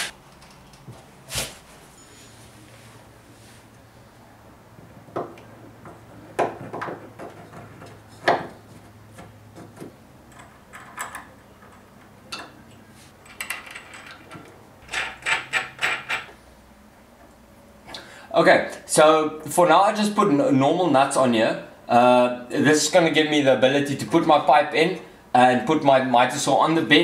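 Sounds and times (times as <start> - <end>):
washers and nuts clinking: 9.6 - 16.4.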